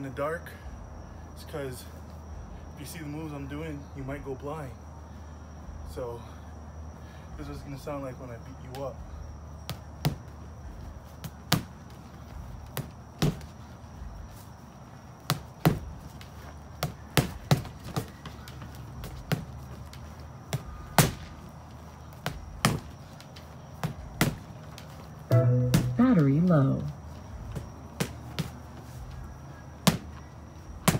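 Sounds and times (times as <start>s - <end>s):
gloves punching heavy bag: 12.6s - 13.6s, 23.8s - 24.5s.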